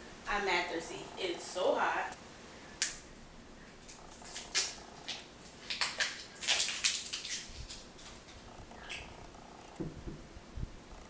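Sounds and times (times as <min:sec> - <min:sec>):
faint purr-like hum: 0:08.3 - 0:11.0.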